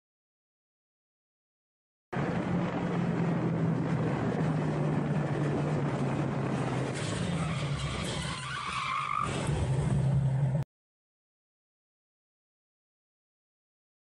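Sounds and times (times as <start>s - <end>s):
wind and road noise: 2.1s - 10.7s.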